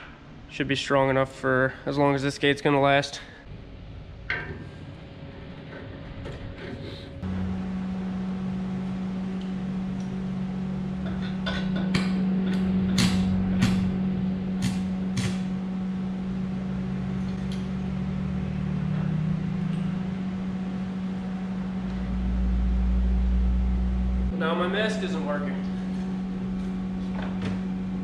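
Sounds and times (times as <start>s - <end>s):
arc welder humming: 7.2s - 28.0s.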